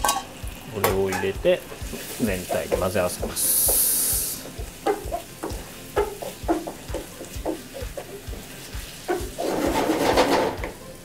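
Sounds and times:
food sizzling in a frying pan: 0:00.0 - 0:11.0
wooden spatula scraping a pan: 0:04.4 - 0:10.8.

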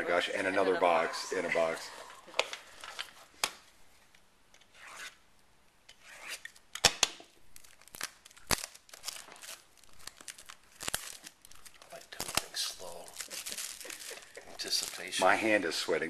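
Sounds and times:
rubbing of cardboard and plastic wrap: 0:07.6 - 0:15.9.

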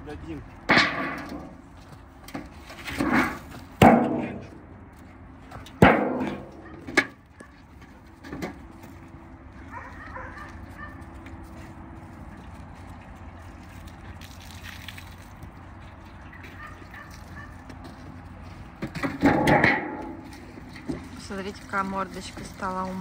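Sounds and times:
metal basin clanging: 0:19.0 - 0:22.7.

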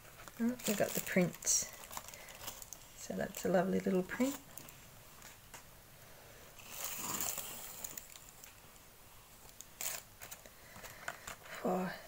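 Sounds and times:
paper rustling: 0:00.0 - 0:05.4.

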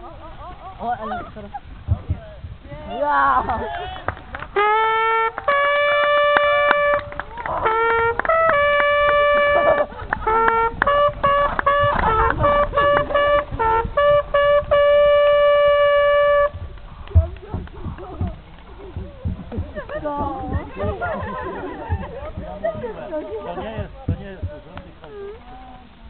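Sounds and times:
hunting horn call: 0:04.5 - 0:17.2.

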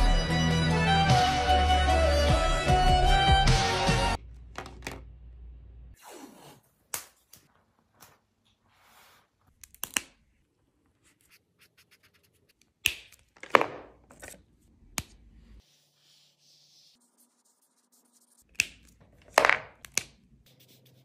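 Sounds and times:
plastic marker caps clicking: 0:18.5 - 0:20.2.

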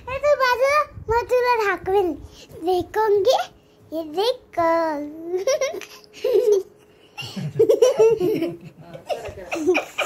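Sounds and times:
children laughing and giggling: 0:05.2 - 0:10.0.

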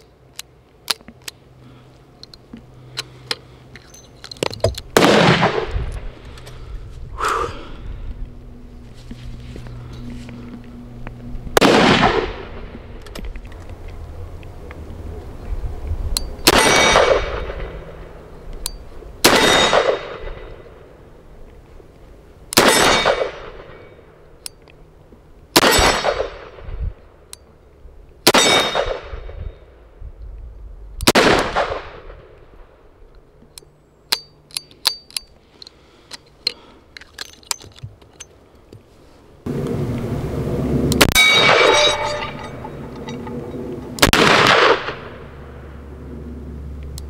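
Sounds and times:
suppressed gunshots: 0:04.9 - 0:05.8, 0:11.6 - 0:12.7, 0:25.6 - 0:26.7, 0:31.0 - 0:32.2, 0:44.0 - 0:45.2
revolver metallic clicks: 0:33.1 - 0:38.4
steel target clanging: 0:41.0 - 0:44.1.

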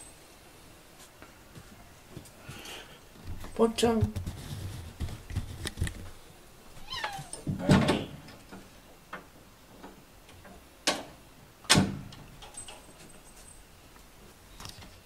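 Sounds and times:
cat meowing: 0:06.8 - 0:07.4.

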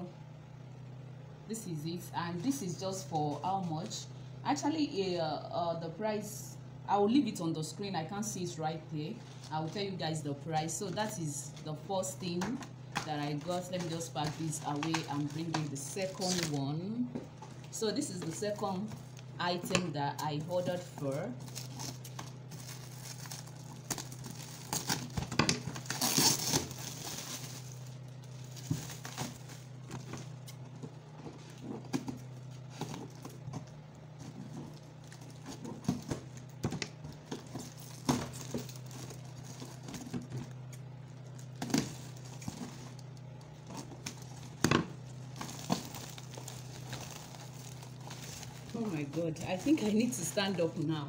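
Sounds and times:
low hum: 0:00.0 - 0:51.0
plastic and cardboard crinkling: 0:10.7 - 0:51.0.

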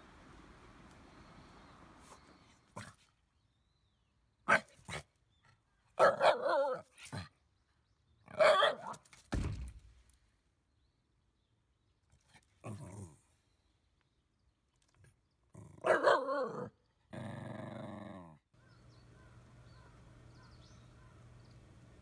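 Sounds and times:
dog barking and yowling: 0:06.0 - 0:07.0, 0:08.3 - 0:09.0, 0:15.8 - 0:16.7
dull thump: 0:09.3 - 0:10.0.

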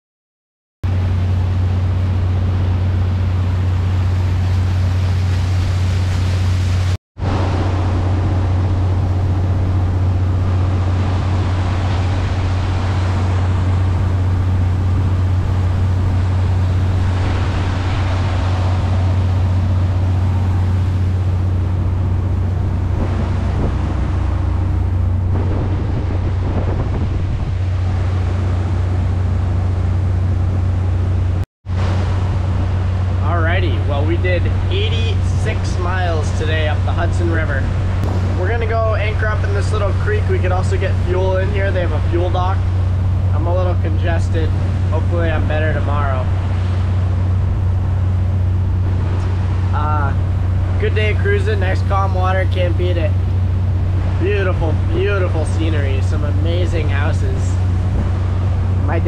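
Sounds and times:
boat engine droning: 0:00.8 - 0:59.0
water rushing past hull: 0:00.9 - 0:59.0
wind on microphone: 0:00.9 - 0:59.0.

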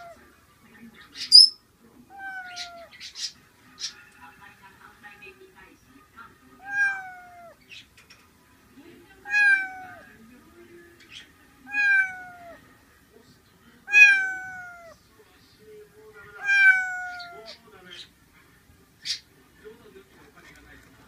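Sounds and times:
kitten meowing: 0:02.1 - 0:02.9, 0:06.6 - 0:07.6, 0:09.3 - 0:10.0, 0:11.7 - 0:12.6, 0:13.9 - 0:15.0, 0:16.4 - 0:17.6.

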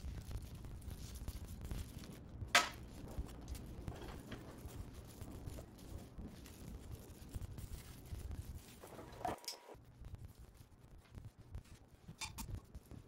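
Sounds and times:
wood scraping: 0:02.6 - 0:09.8.

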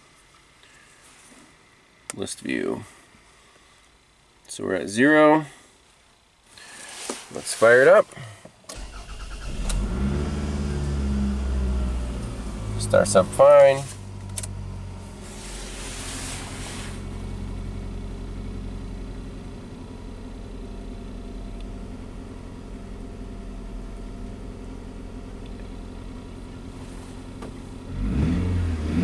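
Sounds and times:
brief hiss: 0:06.5 - 0:07.7, 0:15.2 - 0:17.2
car engine idling and revving: 0:08.8 - 0:29.0.

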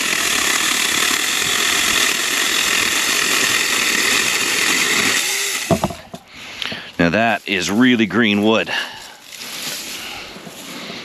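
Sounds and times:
electric chainsaw cutting branch: 0:00.0 - 0:06.2.

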